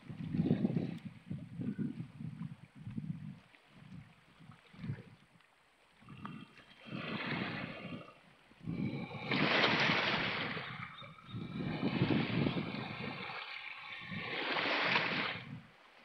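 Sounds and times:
sea waves washing over rocks: 0:08.7 - 0:16.0.

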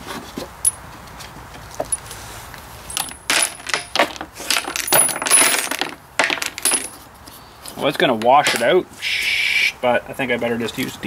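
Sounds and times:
nuts and bolts rattling in tank: 0:02.9 - 0:07.0.

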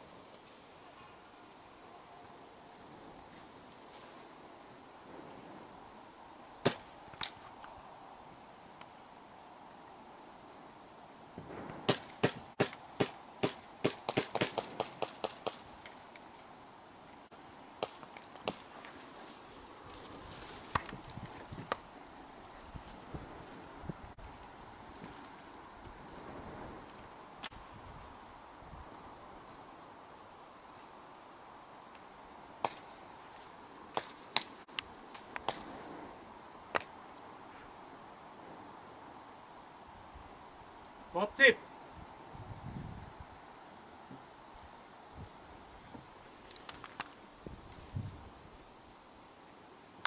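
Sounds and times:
airsoft gun shots: 0:06.6 - 0:06.9, 0:11.9 - 0:15.6.

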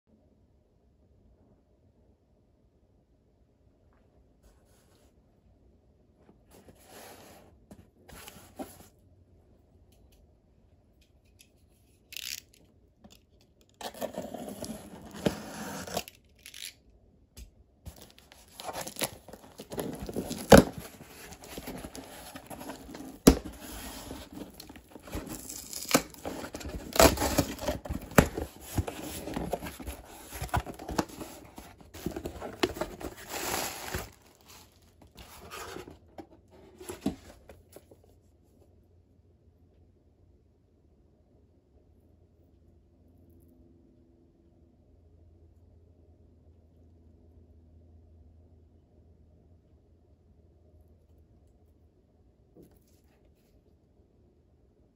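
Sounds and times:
cardboard scraping: 0:06.5 - 0:08.9, 0:13.8 - 0:16.2, 0:17.9 - 0:38.0
tape ripping: 0:12.1 - 0:12.6, 0:17.9 - 0:34.6
cardboard box being torn open: 0:13.8 - 0:16.7, 0:17.9 - 0:34.6
plastic wrap crinkling: 0:17.9 - 0:34.8.

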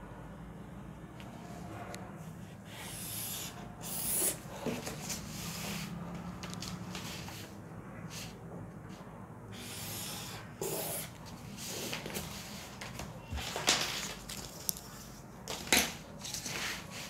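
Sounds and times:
paper rustling and scraping: 0:04.6 - 0:07.6, 0:11.3 - 0:17.0.

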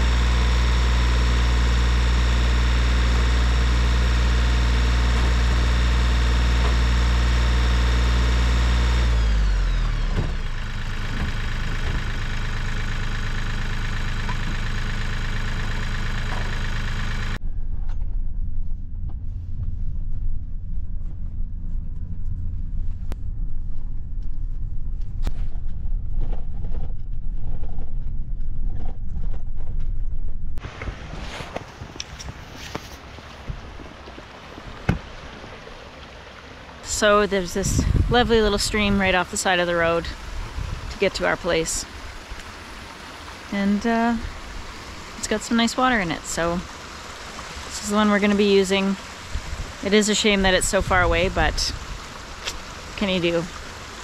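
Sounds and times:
pickup truck driving on rough road: 0:00.0 - 0:17.4
tractor diesel engine: 0:00.0 - 0:17.4, 0:30.6 - 0:54.0.

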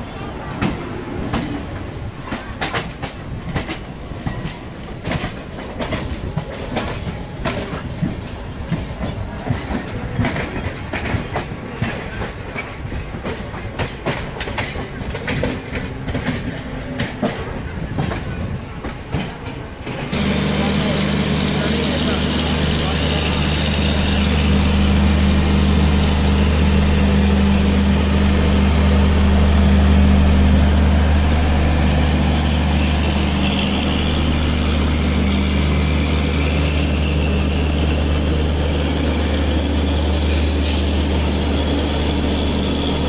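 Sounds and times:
machinery humming: 0:20.1 - 0:43.0.

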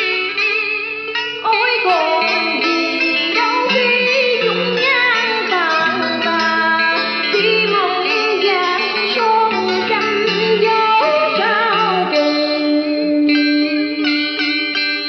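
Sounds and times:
karaoke backing music: 0:00.0 - 0:15.0
woman singing into microphone: 0:00.0 - 0:15.0.

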